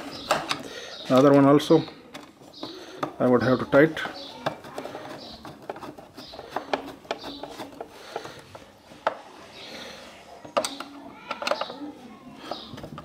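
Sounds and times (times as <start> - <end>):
screwdriver clicking and scraping: 4.1 - 8.6.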